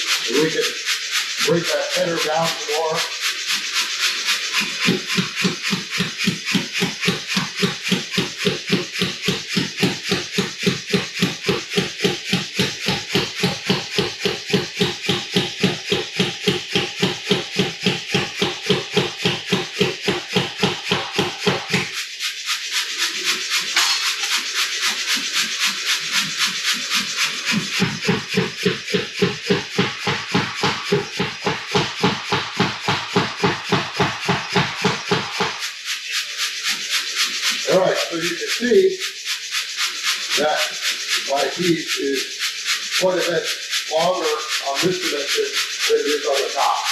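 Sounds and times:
steady hiss: 0.0s - 46.9s
power hammer striking steel: 4.8s - 21.9s, 23.8s - 24.4s, 27.8s - 35.6s.

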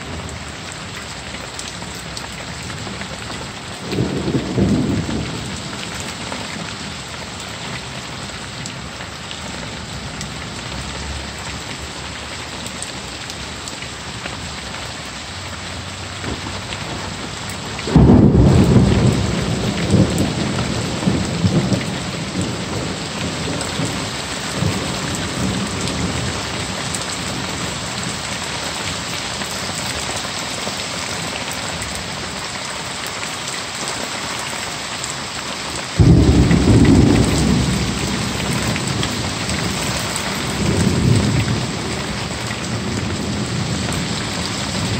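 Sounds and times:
heavy rain falling: 0.0s - 44.9s
thunder claps: 3.8s - 6.8s, 16.2s - 27.6s, 36.0s - 44.9s.

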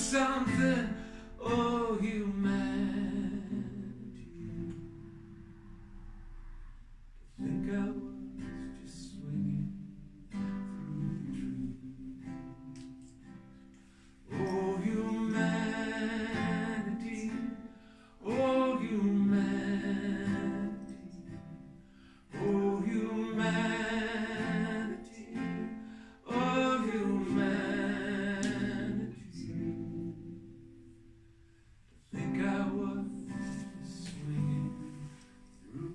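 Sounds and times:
man singing with vibrato: 0.0s - 5.2s, 7.3s - 12.9s, 14.2s - 30.8s, 32.1s - 35.9s
acoustic guitar: 0.0s - 35.9s.

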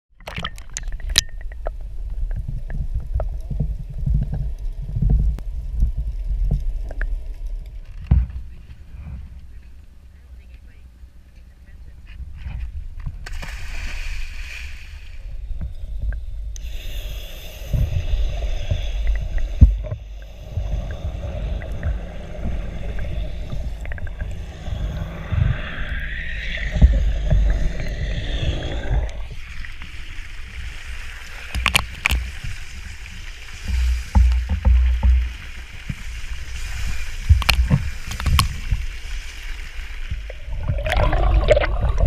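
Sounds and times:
deep steady rumble: 1.0s - 29.8s
water rushing and splashing: 13.2s - 15.4s, 16.6s - 42.0s.

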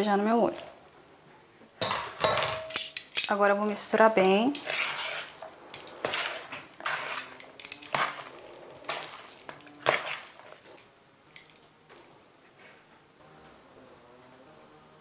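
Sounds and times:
metal tongs scraping plastic bowl: 4.2s - 10.3s.

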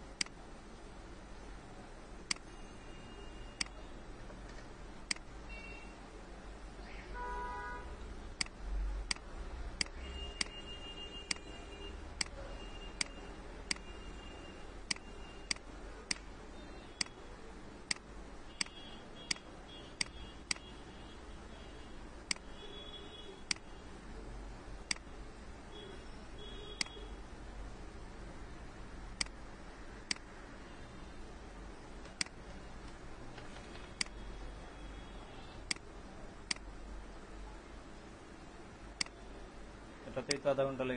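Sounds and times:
faint steady hiss: 0.0s - 40.9s.

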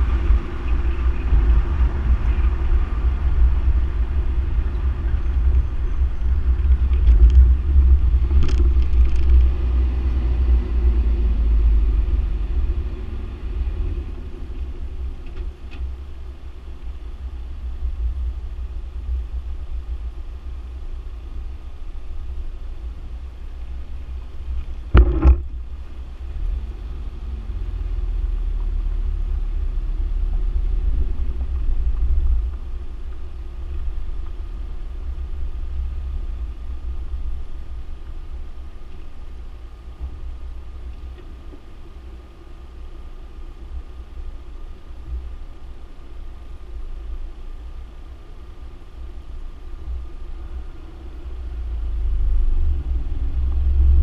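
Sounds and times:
car engine and road noise: 0.0s - 54.0s
car hitting bump knock: 24.9s - 25.6s.

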